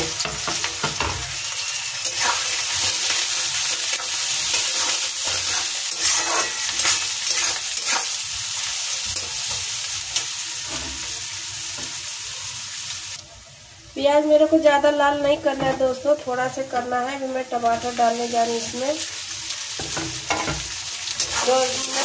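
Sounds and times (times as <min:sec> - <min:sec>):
onions sizzling in oil: 0:00.0 - 0:22.0
metal spatula scraping a pan: 0:00.1 - 0:08.3, 0:19.8 - 0:22.0.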